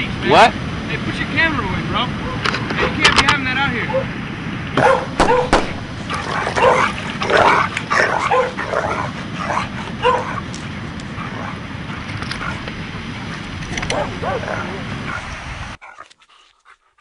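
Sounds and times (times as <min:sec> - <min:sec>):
dog barking and yelping: 0:02.2 - 0:03.1, 0:03.8 - 0:04.1, 0:04.8 - 0:11.6, 0:13.8 - 0:16.1
sharp knock: 0:05.2 - 0:05.8.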